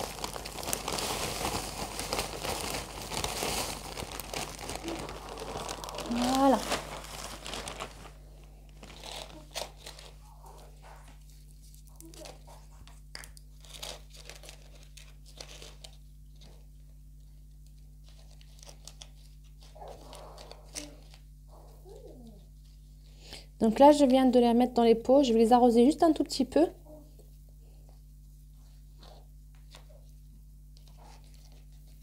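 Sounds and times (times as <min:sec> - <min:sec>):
potting soil rustling and crunching: 0:00.0 - 0:08.2
plastic bag crinkling: 0:00.0 - 0:16.8.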